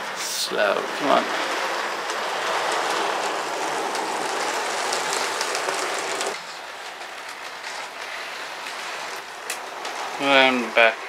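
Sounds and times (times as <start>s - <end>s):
model train running on track: 0.0s - 11.0s
clicks over rail joints: 1.0s - 11.0s.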